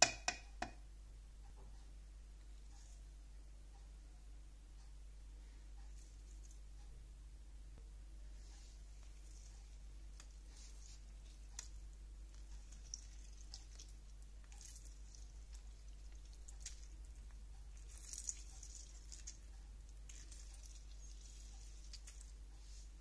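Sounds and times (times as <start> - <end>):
juice dripping: 8.9 - 23.0
lemon pulp squishing: 8.9 - 23.0.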